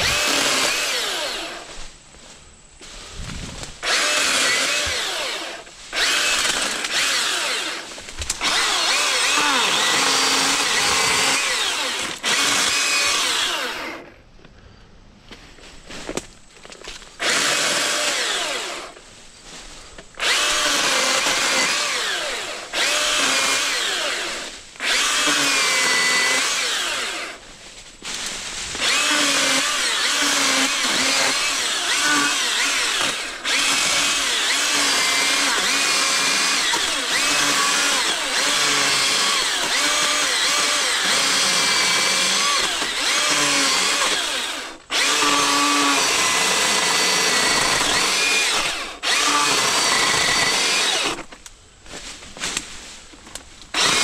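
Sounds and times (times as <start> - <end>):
battery chainsaw cutting wood: 0.0 - 1.8, 3.7 - 14.1, 17.2 - 19.0, 20.2 - 27.4, 28.7 - 51.4, 53.7 - 54.0.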